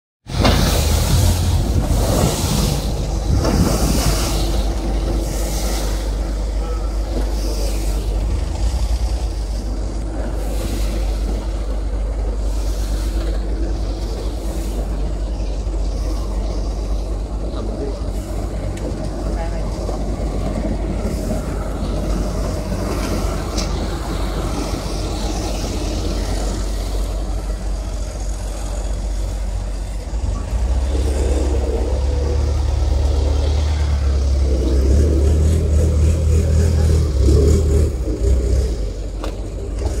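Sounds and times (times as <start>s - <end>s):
wind: 0.2s - 40.0s
water rushing along hull: 0.3s - 16.3s
boat engine droning: 0.3s - 40.0s.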